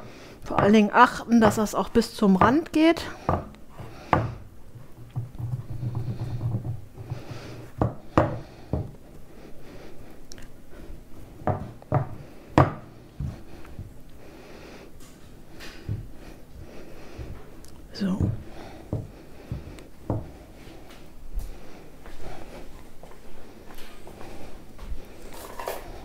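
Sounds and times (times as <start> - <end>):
hands pressing dough: 0.0 - 9.3, 11.2 - 14.2, 15.6 - 20.5.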